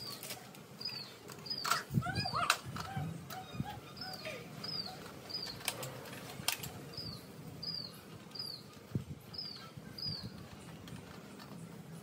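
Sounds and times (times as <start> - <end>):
small bird chirping: 0.8 - 2.5, 3.3 - 5.7, 6.9 - 10.7
sharp plastic clicks: 1.2 - 3.4, 5.4 - 6.8.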